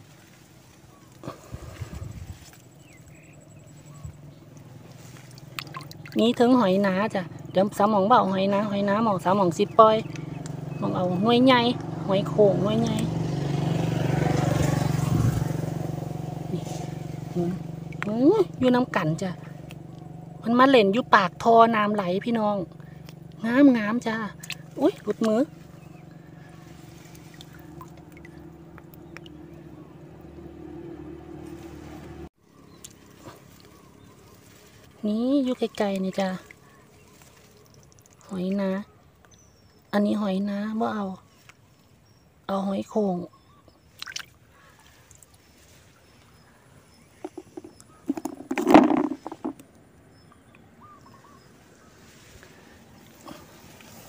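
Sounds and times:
small splashes and drips: 3.8 - 6.5, 14.3 - 18.7, 22.2 - 30.4, 31.5 - 39.8, 43.7 - 46.5, 51.6 - 54.0
water pouring into pool: 5.2 - 6.2
snail shells knocking: 47.2 - 49.7.

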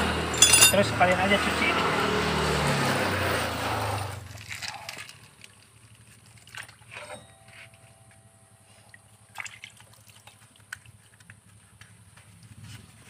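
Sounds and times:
water splashes: 4.2 - 7.0, 8.8 - 11.2
water trickling and dripping: 8.7 - 11.5.

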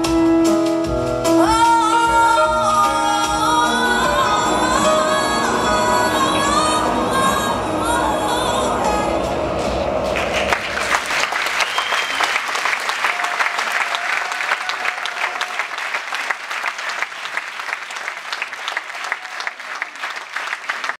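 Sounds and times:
audience applauding: 10.2 - 21.0.

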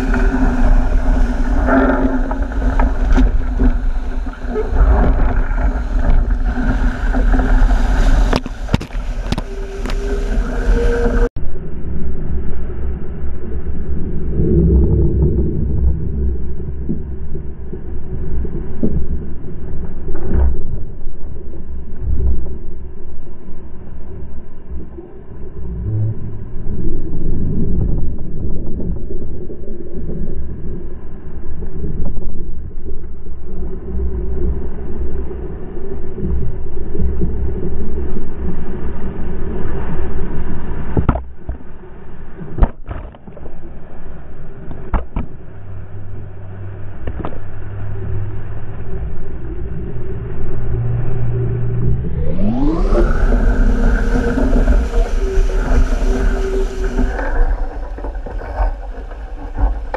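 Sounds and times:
water rushing along hull: 0.0 - 59.9
wind buffeting microphone: 51.9 - 59.9.

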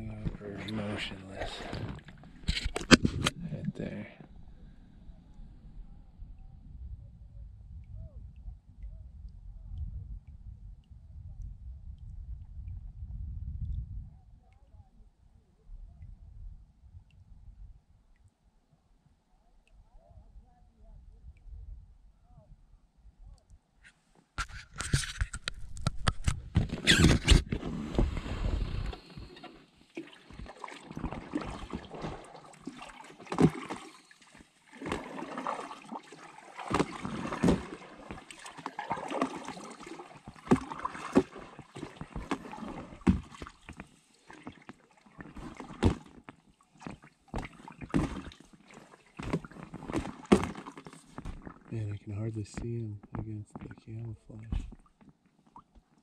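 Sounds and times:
paddle splashing through water: 0.0 - 3.4, 24.4 - 51.7
paddle knocking on hull: 36.6 - 39.6, 40.2 - 43.6.

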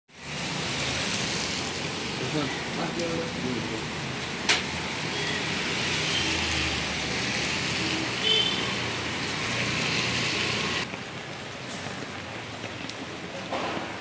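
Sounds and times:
heavy rain falling: 0.1 - 14.0
vehicle passing on wet road: 0.1 - 14.0.

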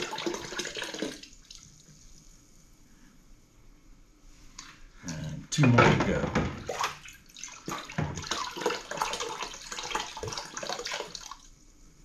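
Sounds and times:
liquid sloshing in plastic bucket: 5.6 - 11.5.

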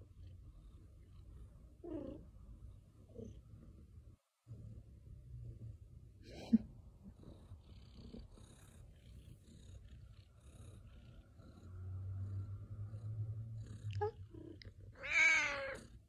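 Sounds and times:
cat purring: 0.0 - 16.0
cat meowing: 15.0 - 15.8.

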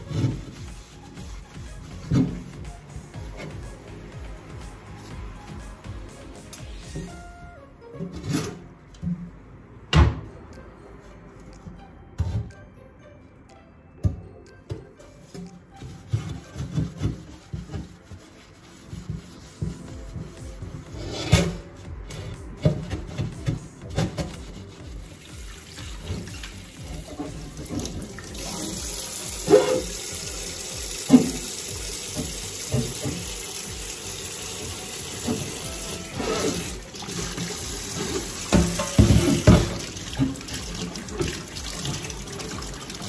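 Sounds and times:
tap water running into sink: 22.6 - 43.0.

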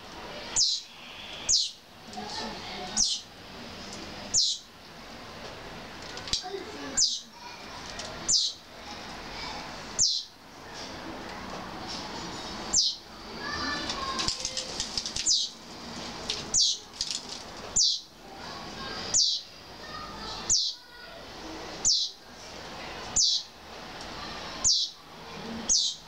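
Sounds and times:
fledglings begging chirps: 0.6 - 1.8, 3.0 - 3.3, 4.3 - 4.7, 6.9 - 7.3, 8.3 - 8.6, 10.0 - 10.4, 12.7 - 13.1, 15.2 - 15.6, 16.5 - 16.9, 17.8 - 18.1, 19.1 - 19.5, 20.3 - 20.8, 21.8 - 22.2, 23.2 - 23.5, 24.6 - 25.0, 25.7 - 26.0.

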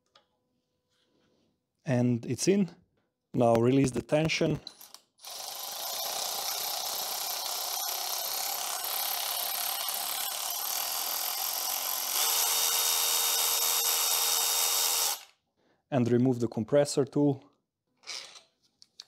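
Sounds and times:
power drill motor whirring: 5.2 - 15.4.

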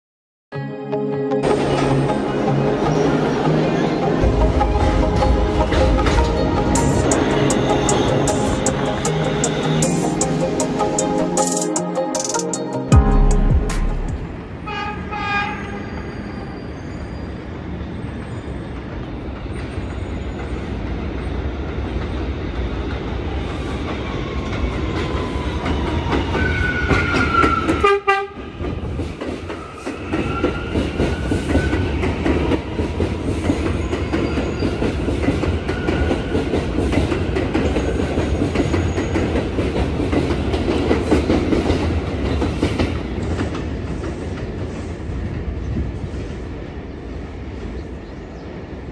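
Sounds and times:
train wheels rumbling and clacking: 4.2 - 11.6, 18.2 - 47.9
train horn: 14.6 - 16.3, 26.7 - 28.5.

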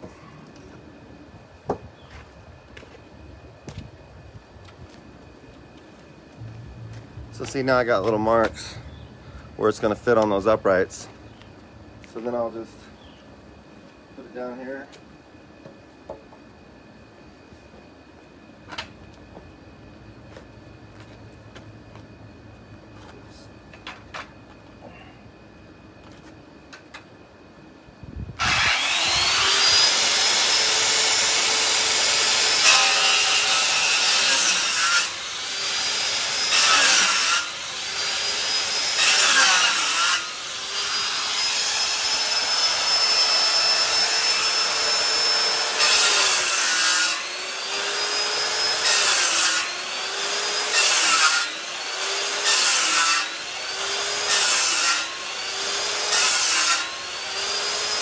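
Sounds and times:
circular saw cutting wood: 28.4 - 58.0.

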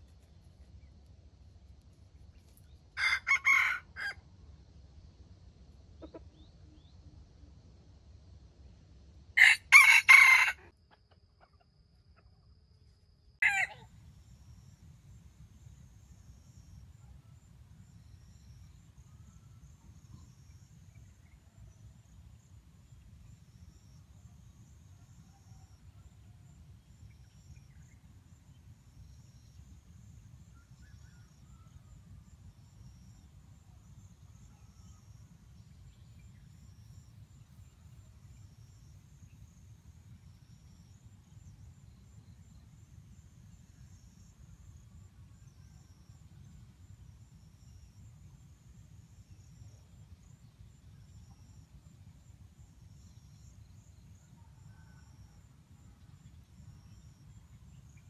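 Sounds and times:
rooster crowing: 3.0 - 4.2, 9.4 - 10.7, 13.4 - 13.9
faint low rumble: 4.2 - 9.4.

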